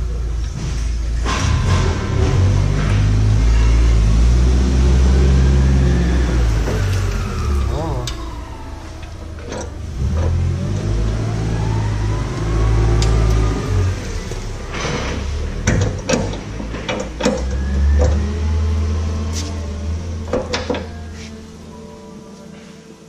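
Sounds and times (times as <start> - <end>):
engine running: 0.0 - 21.9
sharp knocks and clicks: 14.8 - 18.2.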